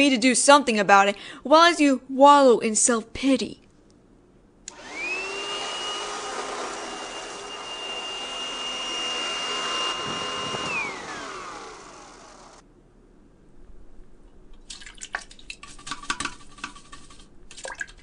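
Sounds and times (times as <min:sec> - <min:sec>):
vacuum cleaner motor whine: 0:04.7 - 0:12.6.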